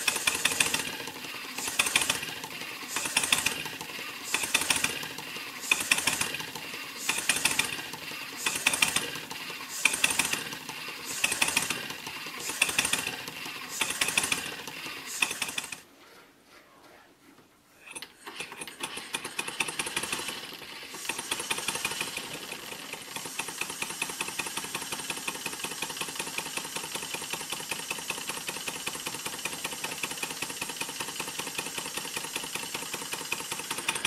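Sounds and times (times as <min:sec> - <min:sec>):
steam engine ticking: 0:00.0 - 0:15.8, 0:17.9 - 0:34.0
steam hissing: 0:00.0 - 0:15.8.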